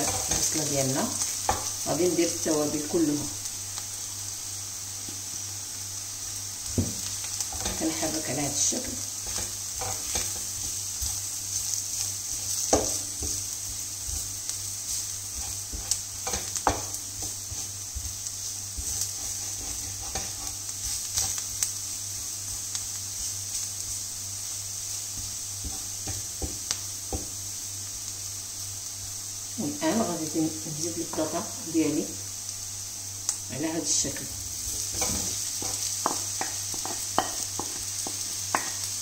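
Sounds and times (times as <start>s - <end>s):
vegetables sizzling in oil: 0.0s - 39.0s
wooden spatula scraping pan: 7.5s - 21.5s, 34.6s - 38.8s.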